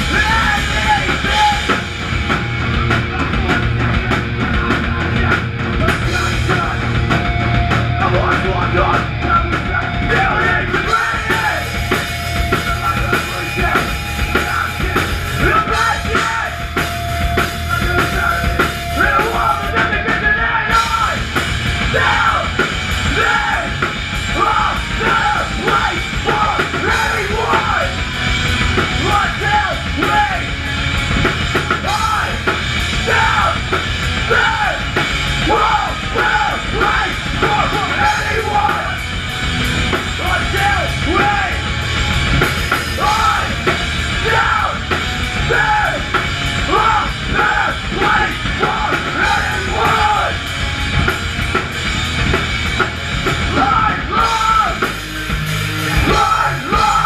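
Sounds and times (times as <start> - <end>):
vocalist shouting and screaming: 0.0 - 1.8, 8.0 - 16.8, 17.4 - 28.0, 28.9 - 30.6, 31.8 - 39.1, 40.1 - 41.6, 42.8 - 50.5, 53.4 - 55.0, 56.0 - 57.0
distorted electric guitars and bass: 0.0 - 57.0
pounding drum kit: 0.0 - 57.0.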